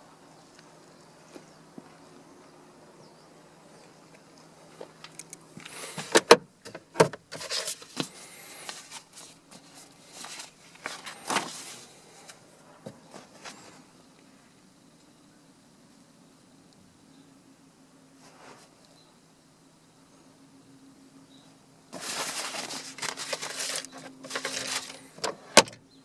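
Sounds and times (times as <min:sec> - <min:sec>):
paper rustling and crinkling: 0:07.3 - 0:12.4, 0:21.9 - 0:25.8.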